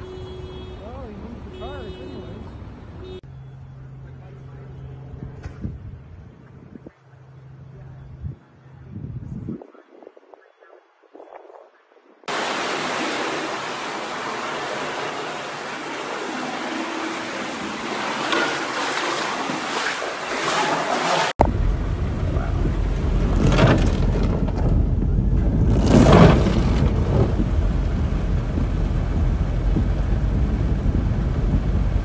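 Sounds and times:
floodwater rushing and splashing: 0:12.3 - 0:22.0
cars wading through water: 0:12.3 - 0:32.0
heavy rain: 0:12.3 - 0:32.0.

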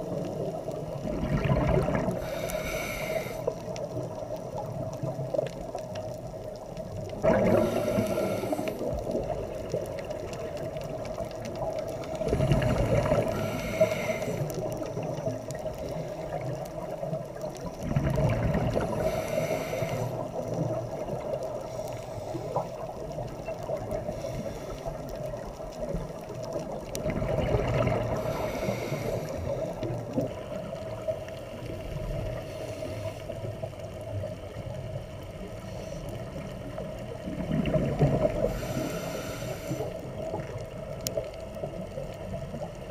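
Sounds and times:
exhaled bubbles: 0:00.0 - 0:32.4, 0:36.2 - 0:42.9
regulator breath hiss: 0:02.2 - 0:03.7, 0:07.5 - 0:09.0, 0:13.2 - 0:14.7, 0:18.8 - 0:20.6, 0:24.0 - 0:25.0, 0:28.1 - 0:29.8, 0:31.1 - 0:33.6, 0:38.4 - 0:40.2.

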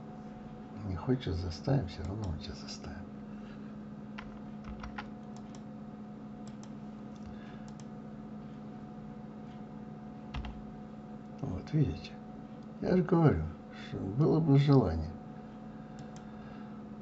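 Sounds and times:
low electrical hum: 0:00.0 - 0:17.0
keyboard keys tapping: 0:04.2 - 0:05.6, 0:10.3 - 0:10.6.

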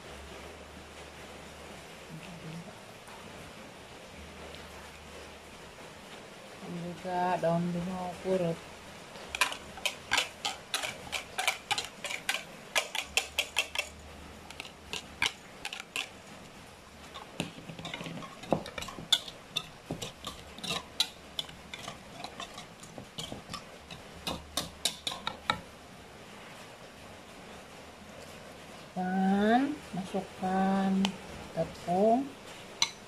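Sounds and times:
whisk clicking against plastic bowl: 0:09.3 - 0:16.1, 0:17.2 - 0:25.6.

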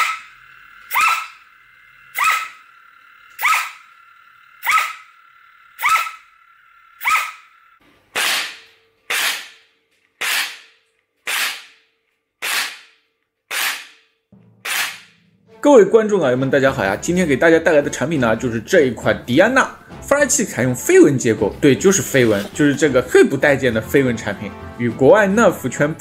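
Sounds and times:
flywheels whining: 0:00.0 - 0:11.8
foam-dart blaster shots: 0:08.1 - 0:11.8, 0:12.4 - 0:15.2.

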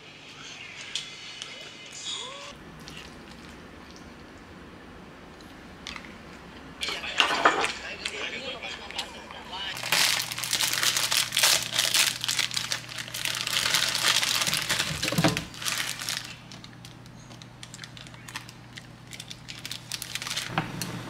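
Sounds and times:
plastic wrapper crinkling and tearing: 0:09.7 - 0:20.5.

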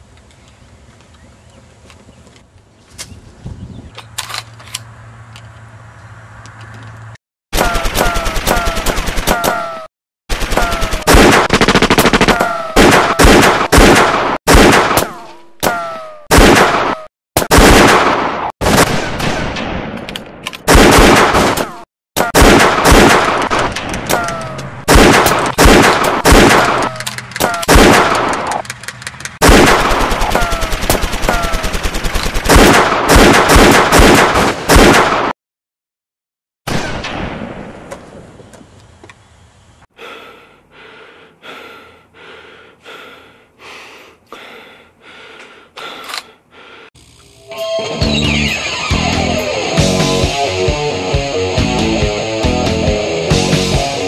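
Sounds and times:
machine-gun bursts: 0:07.6 - 0:15.0, 0:22.4 - 0:28.5, 0:29.4 - 0:35.1.

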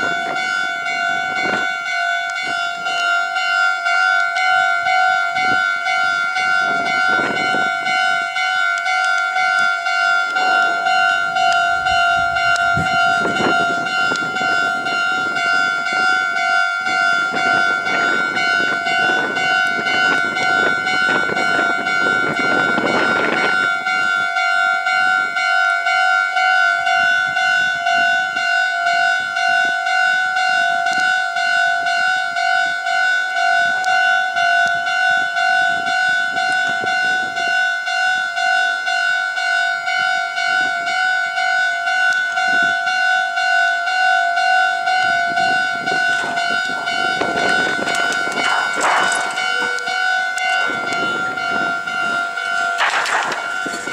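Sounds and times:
level-crossing alarm bell: 0:00.0 - 0:53.9
train rumbling past: 0:44.9 - 0:53.9.

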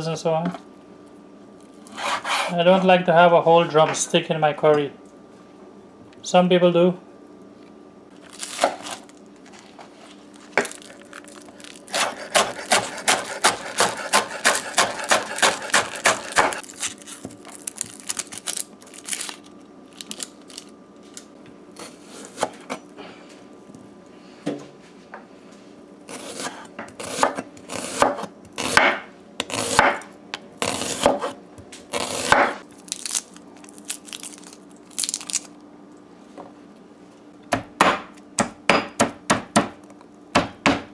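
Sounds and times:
knife chopping on wooden board: 0:11.9 - 0:17.0, 0:26.1 - 0:32.6, 0:37.5 - 0:40.9.

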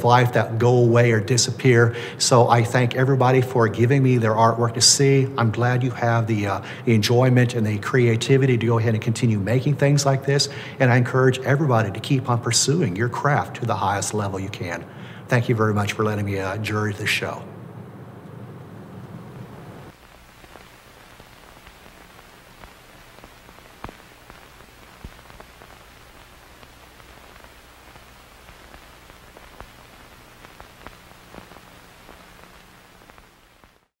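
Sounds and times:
faint static hiss: 0:00.0 - 0:34.0
static clicks and crackles: 0:18.0 - 0:34.0.

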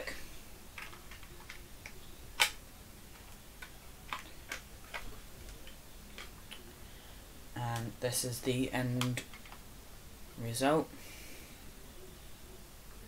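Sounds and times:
plastic model parts clicking: 0:00.8 - 0:02.6, 0:03.2 - 0:06.6.

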